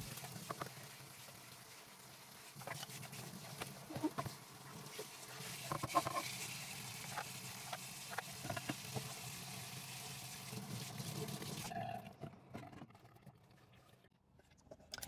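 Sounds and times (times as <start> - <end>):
tap water running into sink: 0.0 - 11.7.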